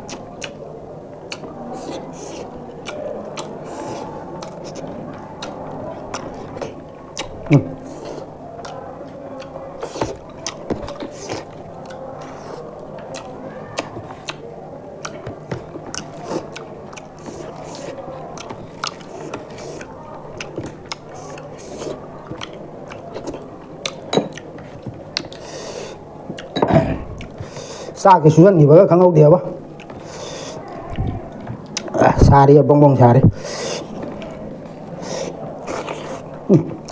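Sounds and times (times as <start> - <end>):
wet chewing and lip smacks: 0.0 - 0.6, 1.2 - 7.4, 13.0 - 25.4.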